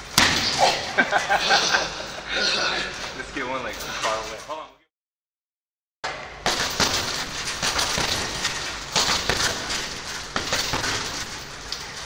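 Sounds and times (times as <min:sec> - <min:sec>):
punches hitting heavy bag: 0:06.4 - 0:11.4.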